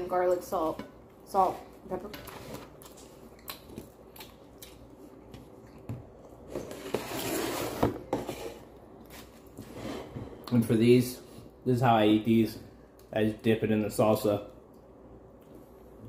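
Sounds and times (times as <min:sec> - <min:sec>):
chewing crisp food: 0:02.7 - 0:06.5.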